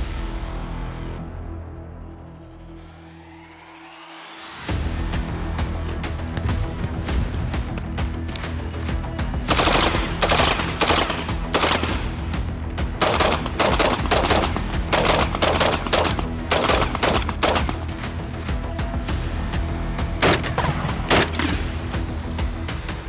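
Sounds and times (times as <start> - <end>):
background music with steady beat: 0.0 - 23.0
automatic gunfire bursts: 9.5 - 12.2, 13.0 - 17.9.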